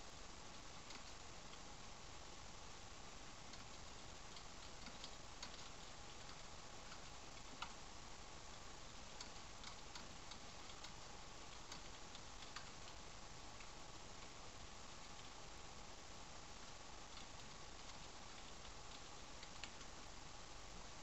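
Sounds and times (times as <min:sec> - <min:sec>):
steady background hiss: 0:00.0 - 0:21.0
faint clicks: 0:00.5 - 0:01.7, 0:03.5 - 0:07.8, 0:09.1 - 0:14.4, 0:16.6 - 0:20.0.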